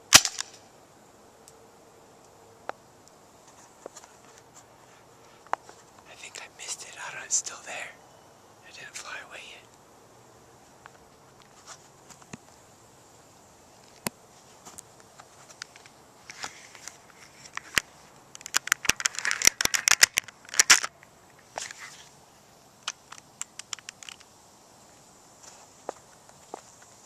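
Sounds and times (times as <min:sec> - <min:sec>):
close crackling and clicking: 0:13.8 - 0:22.1, 0:22.8 - 0:24.4.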